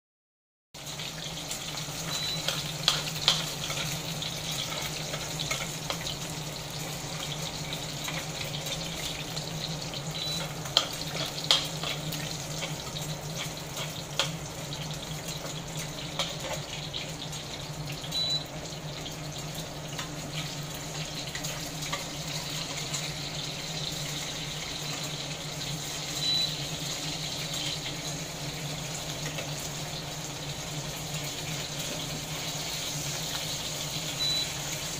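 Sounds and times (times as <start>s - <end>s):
eggs sizzling in oil: 0.8s - 34.9s
short high beep: 26.2s - 26.6s.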